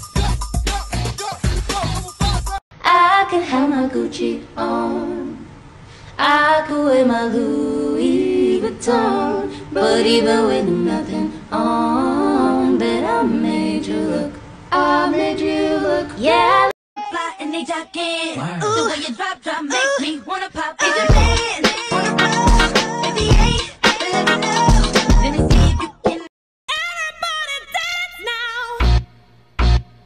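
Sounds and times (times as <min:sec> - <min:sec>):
person singing a melody: 0:14.8 - 0:28.9.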